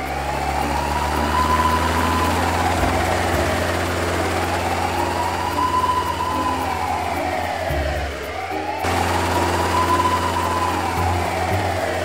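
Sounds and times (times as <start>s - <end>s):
helicopter rotor drone: 0.0s - 12.0s
siren wailing: 0.0s - 12.0s.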